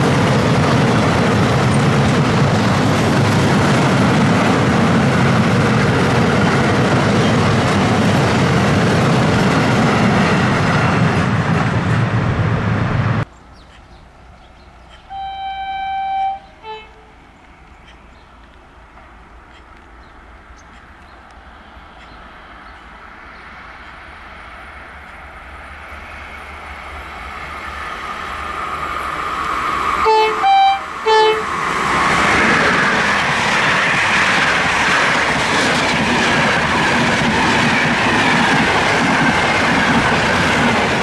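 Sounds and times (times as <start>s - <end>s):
train wheel and rail noise: 0.0s - 41.0s
locomotive horn: 15.1s - 17.3s, 30.0s - 31.5s.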